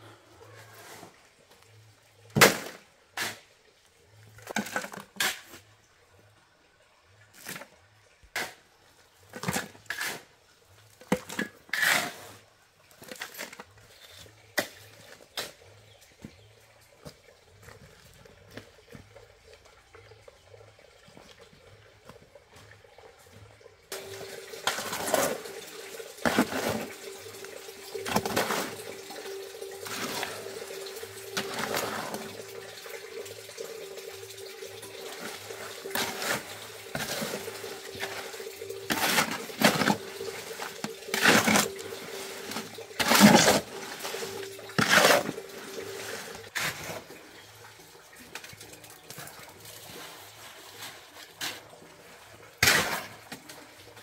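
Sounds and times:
water running: 12.6s - 54.0s
water splashing: 23.9s - 54.0s.

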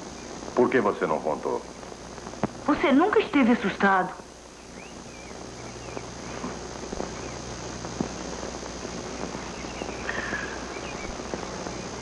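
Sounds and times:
low steady hum: 0.0s - 12.0s
high chirps: 4.3s - 7.8s, 8.8s - 12.0s.

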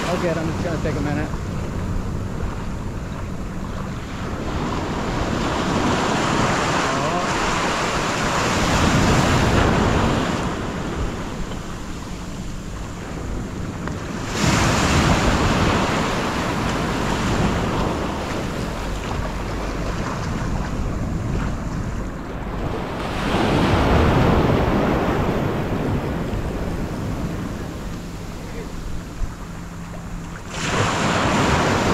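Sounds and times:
ocean surf breaking: 0.0s - 31.9s
wind buffeting microphone: 0.0s - 31.9s.

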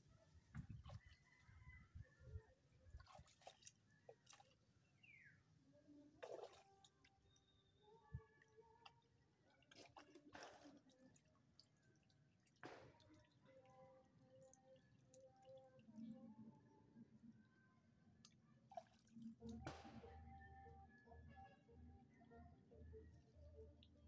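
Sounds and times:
water drips and splashes: 0.4s - 1.3s, 2.8s - 5.2s, 6.2s - 7.5s, 8.3s - 16.2s, 18.2s - 20.1s.

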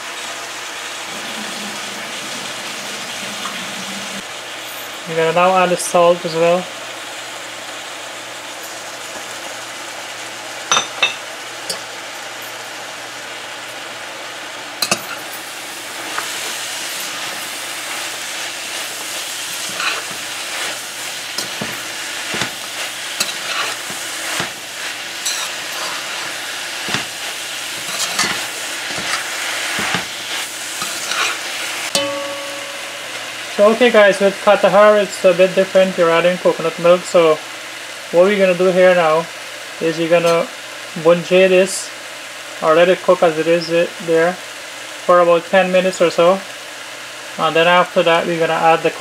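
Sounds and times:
food sizzling in a pot: 0.0s - 49.0s
metal spoon scraping a pot: 19.5s - 20.2s, 23.2s - 24.5s, 25.2s - 26.3s, 27.8s - 30.0s, 30.8s - 32.2s.

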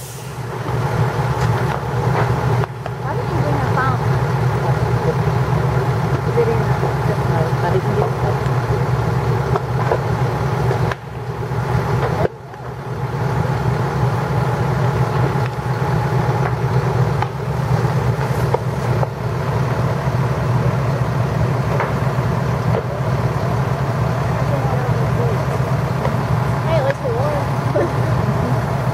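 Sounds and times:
fire low rumble: 0.0s - 28.9s
fire popping and crackling: 0.0s - 28.9s.

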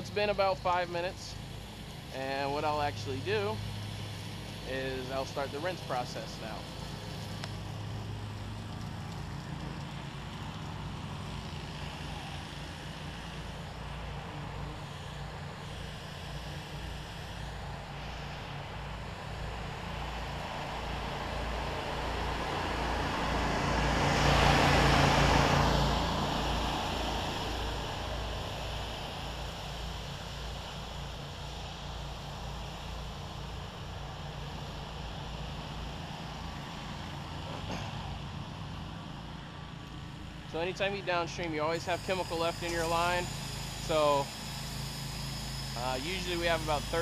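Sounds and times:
pressure washer spraying: 41.7s - 47.0s.

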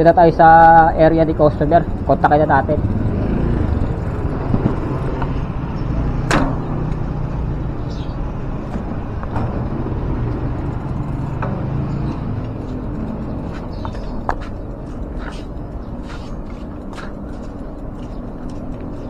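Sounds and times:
bicycle rolling on concrete: 0.0s - 19.0s.

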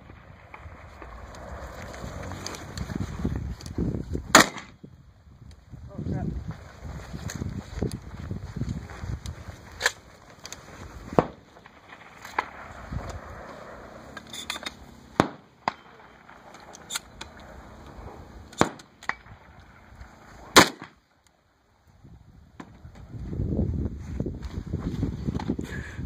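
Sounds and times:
gunshots: 4.3s - 4.8s, 11.1s - 13.3s, 15.0s - 17.2s, 18.5s - 19.5s, 20.5s - 21.0s.

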